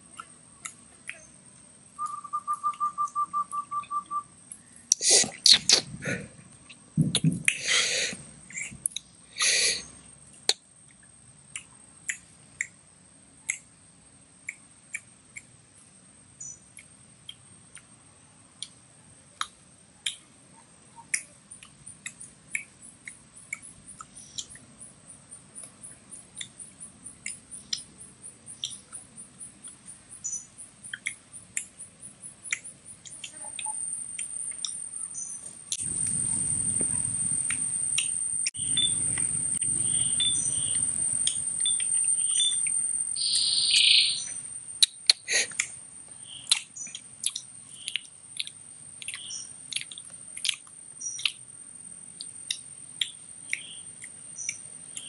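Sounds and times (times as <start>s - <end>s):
mouth clicks and smacks: 4.9s - 10.6s, 13.5s - 13.7s, 19.4s - 20.3s, 21.0s - 24.6s, 30.9s - 31.8s, 32.5s - 34.8s, 35.7s - 35.9s, 44.8s - 45.8s, 46.4s - 51.5s, 52.2s - 55.0s
loud chewing crunches: 46.4s - 51.5s.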